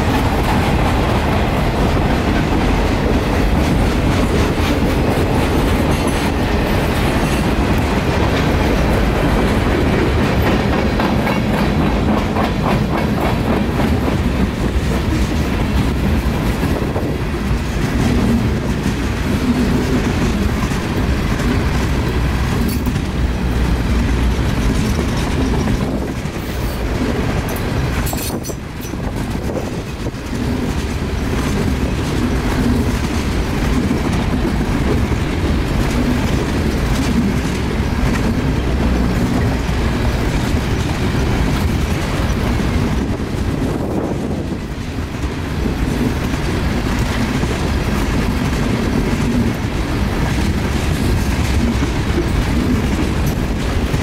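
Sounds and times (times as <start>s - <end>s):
freight train cars rumbling: 0.0s - 54.0s
wheels clacking over rail joints: 0.0s - 54.0s.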